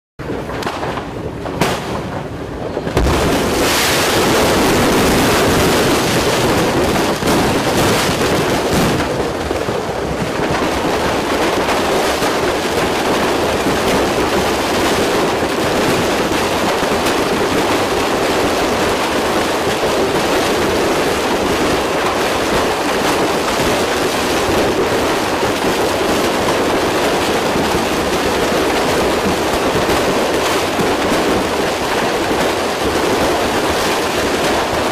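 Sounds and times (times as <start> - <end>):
fireworks crackling and bursting: 0.2 - 34.9
loud bangs: 0.4 - 9.5.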